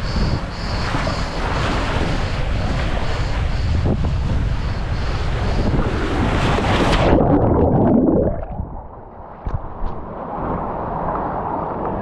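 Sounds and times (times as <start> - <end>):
muffled churning of water: 0.0 - 12.0
rushing water: 6.3 - 12.0
water gurgling: 6.8 - 11.6.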